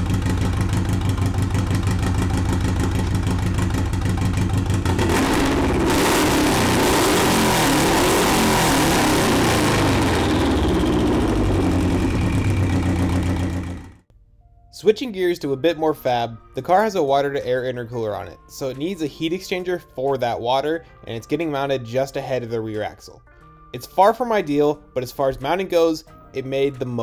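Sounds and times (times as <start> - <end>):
car engine idling and revving: 0.0 - 14.1.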